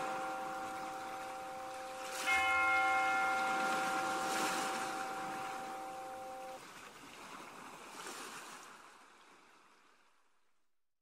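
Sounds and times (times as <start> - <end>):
church bell ringing: 0.0 - 6.6
sea waves: 0.0 - 10.2.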